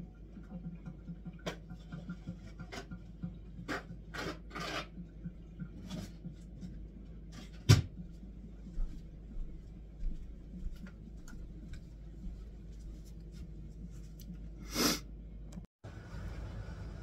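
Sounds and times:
scrapes and rubs: 3.6 - 5.0.

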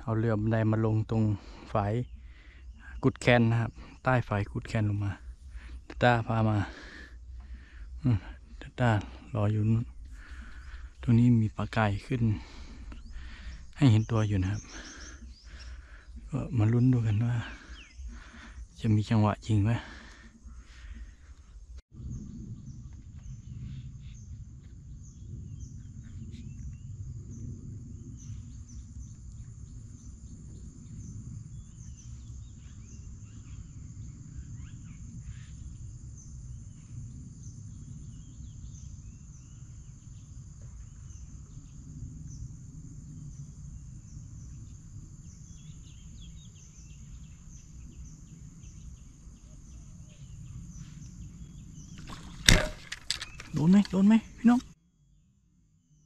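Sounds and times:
high insect drone: 0.0 - 55.2
low rumble: 20.8 - 33.2.

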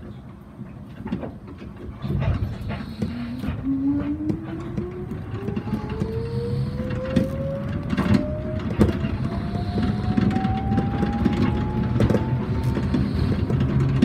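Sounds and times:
running rumble: 0.6 - 14.0
motor whine rising in pitch: 3.4 - 14.0.

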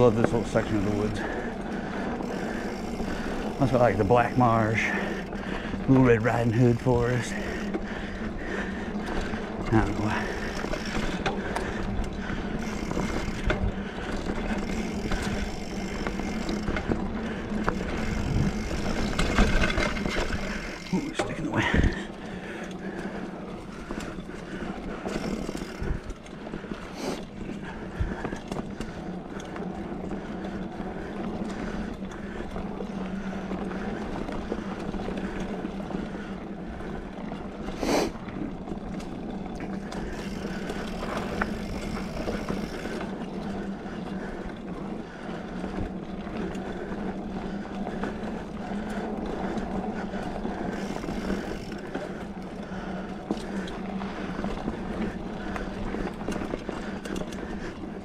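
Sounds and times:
bike rattles and clicks: 0.0 - 58.0
bike tyres on dirt trail: 0.0 - 58.0
low hum: 1.2 - 37.4.

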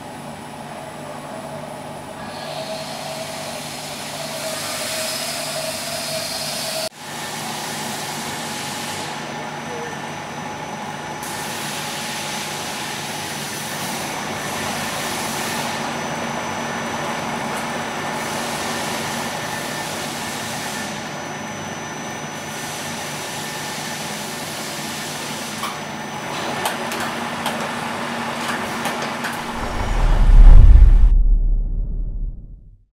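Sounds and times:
deep boom: 29.4 - 32.8.

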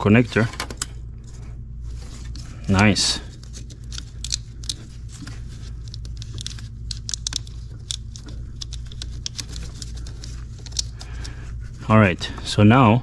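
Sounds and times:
steady low hum: 0.0 - 13.0
small clicks and rustles: 3.3 - 11.4.

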